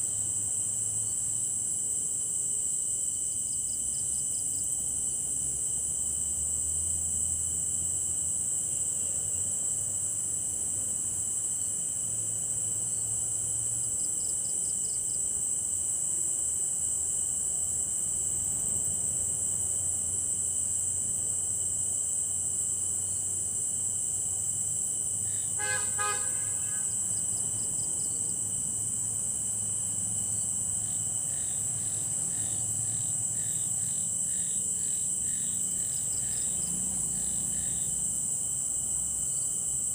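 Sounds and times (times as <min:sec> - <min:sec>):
crickets shrilling: 0:11.4 - 0:39.9.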